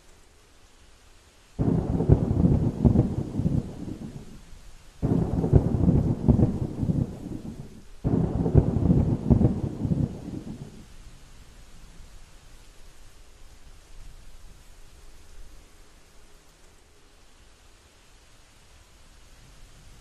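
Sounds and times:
thunder rumbling: 0:01.6 - 0:11.0.

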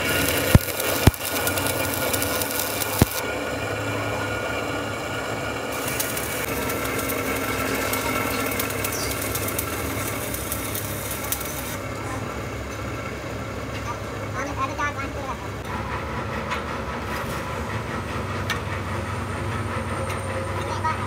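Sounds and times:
sharp clicks: 0:00.0 - 0:03.2, 0:05.8 - 0:11.8
welding arc crackling and buzzing: 0:00.0 - 0:12.1.

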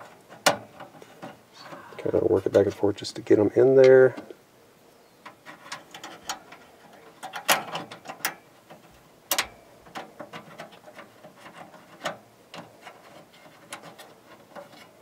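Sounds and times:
metal screws clicking and scraping: 0:05.2 - 0:15.0.

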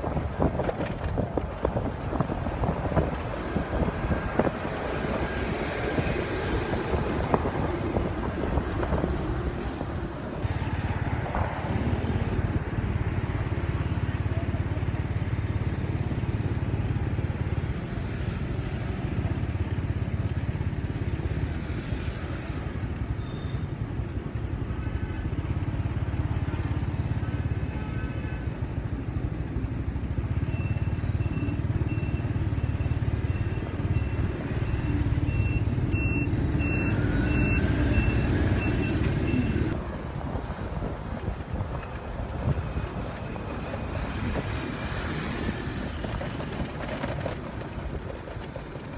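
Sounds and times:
high electronic beep: 0:30.6 - 0:39.7
motor scooter engine: 0:40.4 - 0:48.9.

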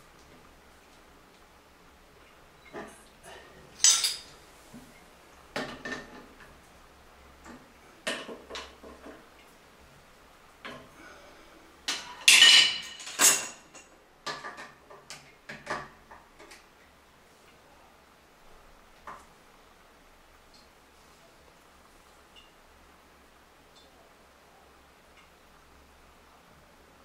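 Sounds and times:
metal hand tools clinking: 0:03.8 - 0:04.3.

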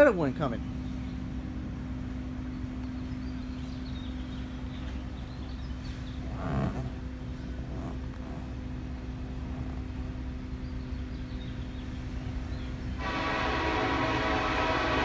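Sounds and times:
locomotive horn: 0:12.2 - 0:15.0.

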